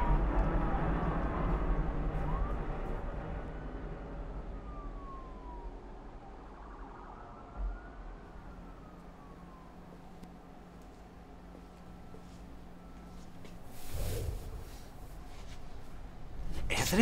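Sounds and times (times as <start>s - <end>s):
distant police siren wailing: 0.0s - 17.0s
low rumble: 13.6s - 16.6s.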